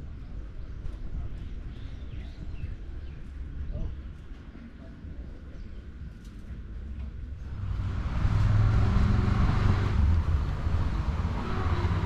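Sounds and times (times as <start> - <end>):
vehicle passing close by: 7.5 - 12.0.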